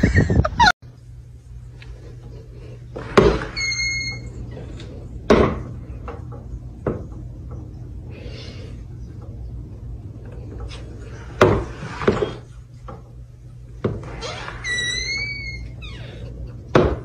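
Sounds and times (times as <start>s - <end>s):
high squeak: 3.4s - 4.4s, 14.0s - 16.2s.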